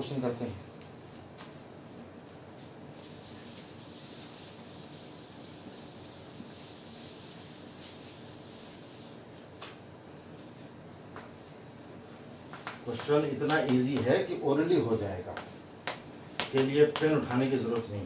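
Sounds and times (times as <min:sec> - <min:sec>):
duster rubbing chalkboard: 0:02.6 - 0:09.4.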